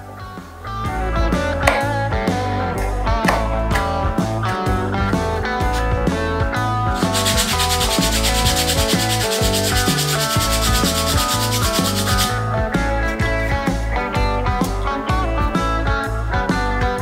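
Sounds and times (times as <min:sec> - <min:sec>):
guitar music: 0:00.0 - 0:17.0
hand sanding wood: 0:07.0 - 0:12.4.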